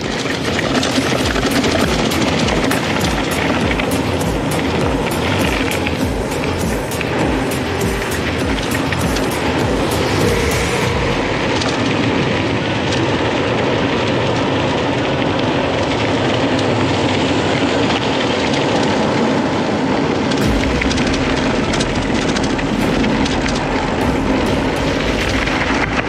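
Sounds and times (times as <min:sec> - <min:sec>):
wind on microphone: 0:00.0 - 0:14.9.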